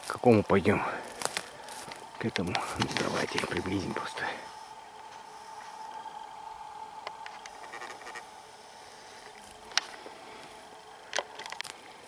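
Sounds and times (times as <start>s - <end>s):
footsteps through undergrowth: 0.0s - 6.0s
faint steady whine: 0.0s - 12.0s
twigs snapping: 1.0s - 3.8s, 9.2s - 11.8s.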